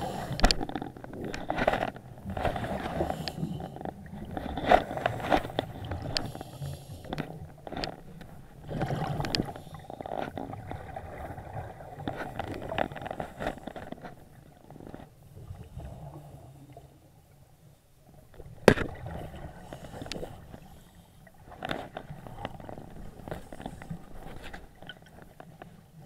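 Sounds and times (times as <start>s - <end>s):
underwater exhaled bubbles: 8.6s - 12.8s.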